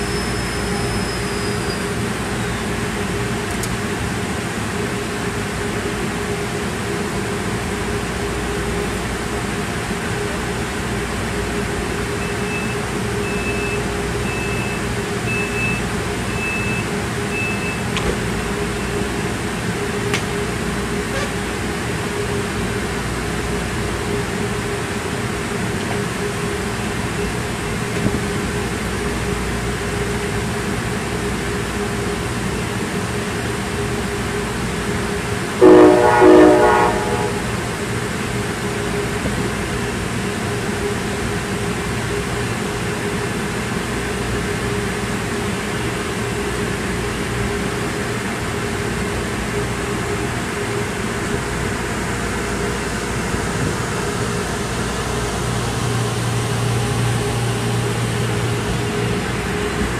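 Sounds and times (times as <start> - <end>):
train idling hum: 0.0 - 59.9
train horn blasts: 21.0 - 21.5, 35.6 - 37.7.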